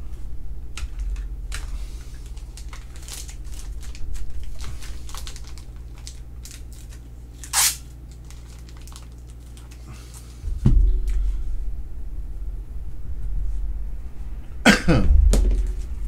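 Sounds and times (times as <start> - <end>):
packaging rustling and crinkling: 0.8 - 10.4.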